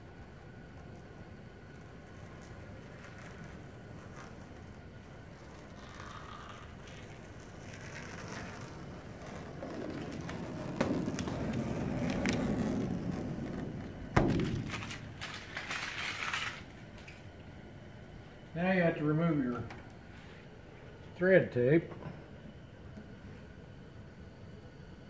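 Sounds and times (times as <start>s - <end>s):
vinyl wrap snapping: 1.7s - 17.3s
vinyl wrap crinkling rustle: 1.7s - 17.4s.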